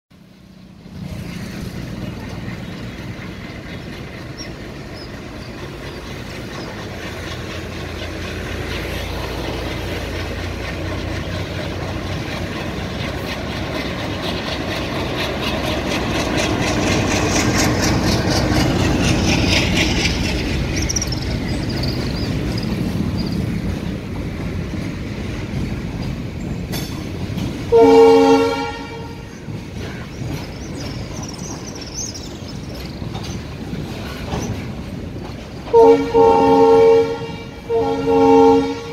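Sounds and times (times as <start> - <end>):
diesel locomotive engine chugging: 0.1 - 38.9
train wheels clicking over rail joints: 0.2 - 38.9
locomotive horn blast: 27.7 - 29.3, 35.7 - 38.9.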